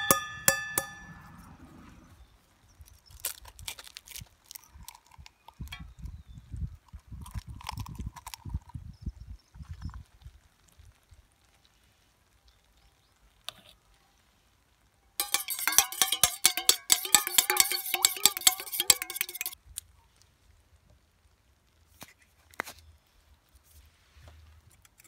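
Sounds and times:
fork beating egg in metal cup: 0:00.0 - 0:01.1, 0:15.2 - 0:19.6.

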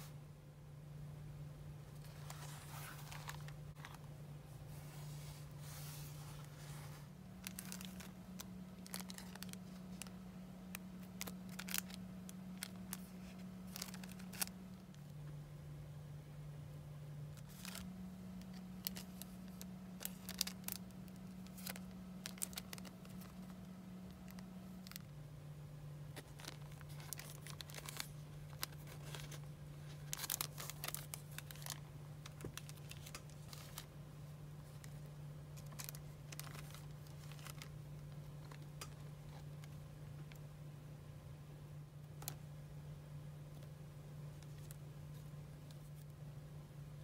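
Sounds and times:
steady low hum: 0:00.0 - 0:47.0
cellophane and paper crinkling: 0:02.0 - 0:04.0, 0:04.7 - 0:15.1, 0:17.3 - 0:25.1, 0:26.1 - 0:33.9, 0:34.6 - 0:40.4, 0:44.3 - 0:46.1.

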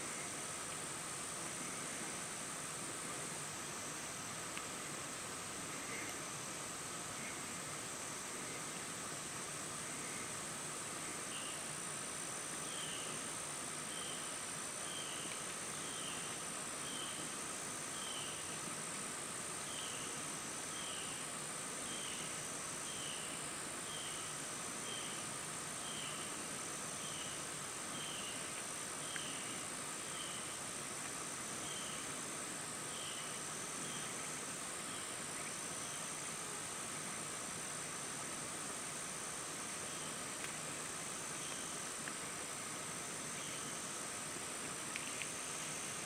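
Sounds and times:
short insect chirp: 0:00.0 - 0:46.0
soft pulsing insect trill: 0:00.0 - 0:46.0
high-pitched insect trill: 0:19.6 - 0:30.7, 0:31.5 - 0:36.8, 0:42.9 - 0:44.3.

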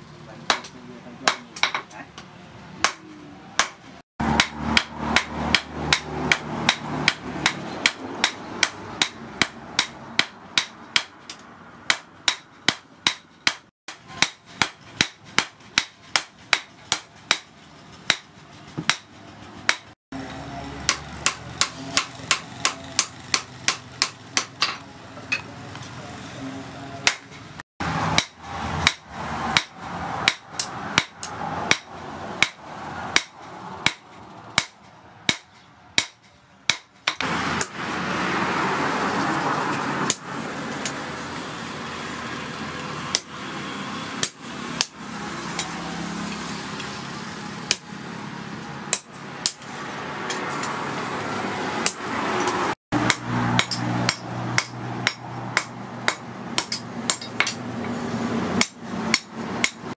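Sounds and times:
hammer striking steel on anvil: 0:00.5 - 0:02.0, 0:02.8 - 0:17.5, 0:18.1 - 0:25.5, 0:27.0 - 0:37.8, 0:47.7 - 0:47.9, 0:48.9 - 0:49.7, 0:51.8 - 0:58.0, 0:58.6 - 0:59.9.

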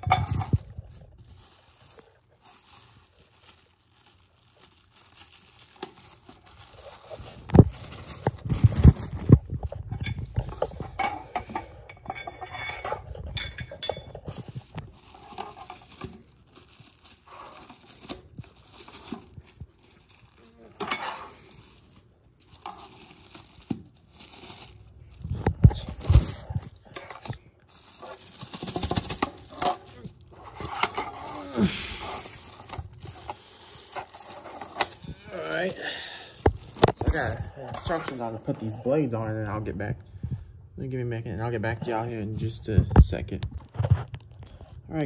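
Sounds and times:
plastic packaging crinkling: 0:00.0 - 0:11.0, 0:12.3 - 0:38.3
hardware clinking: 0:09.8 - 0:15.7, 0:20.7 - 0:21.4.

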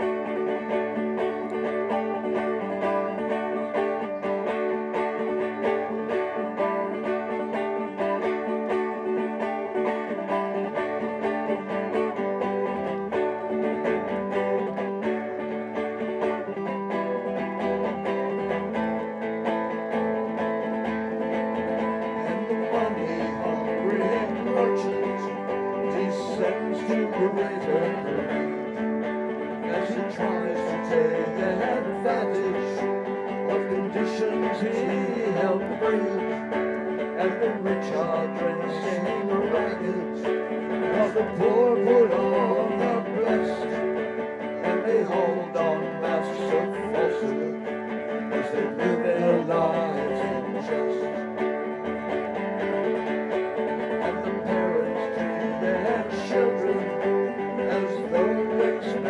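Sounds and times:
acoustic guitar music: 0:00.0 - 0:59.0.

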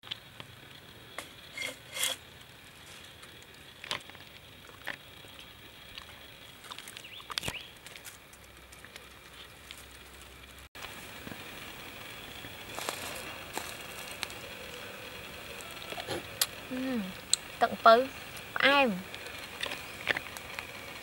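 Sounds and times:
bamboo pieces knocking on dry leaves: 0:12.7 - 0:14.8.

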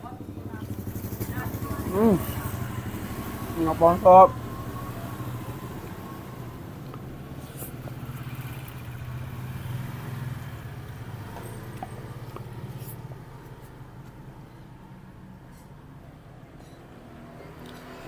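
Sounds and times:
vehicle engine humming: 0:00.0 - 0:18.0.

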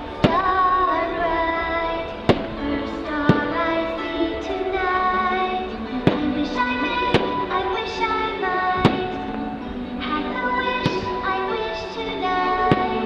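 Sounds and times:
music with singing: 0:00.0 - 0:13.0
firework bangs: 0:04.8 - 0:09.4, 0:12.6 - 0:13.0.

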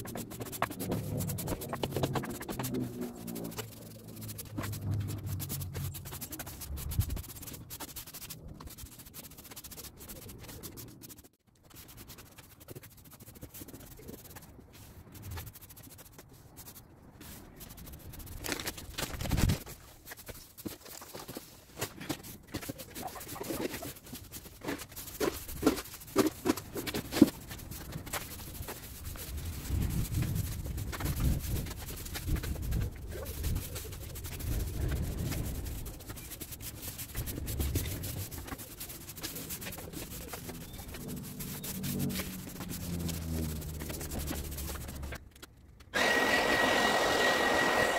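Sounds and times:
push broom sweeping sand: 0:21.3 - 0:45.2, 0:46.0 - 0:47.9.

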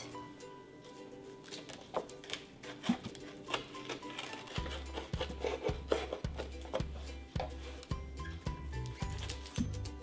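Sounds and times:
background music: 0:00.0 - 0:10.0
knife cutting crisp pastry: 0:02.2 - 0:06.7.

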